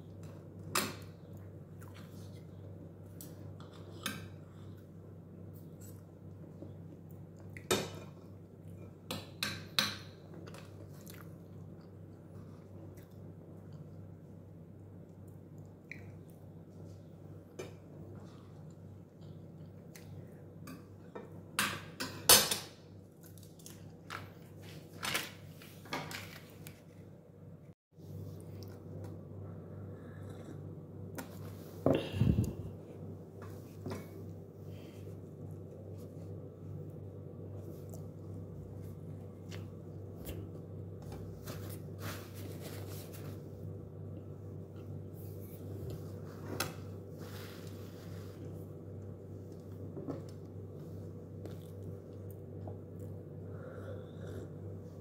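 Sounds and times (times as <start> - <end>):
steady low hum: 26.4 - 55.0.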